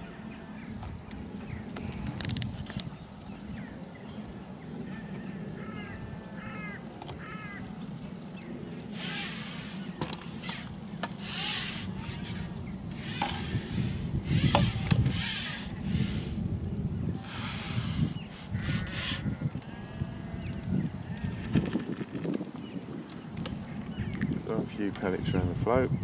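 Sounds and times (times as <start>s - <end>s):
fishing pole sliding through hands: 8.9s - 16.4s, 17.2s - 19.3s.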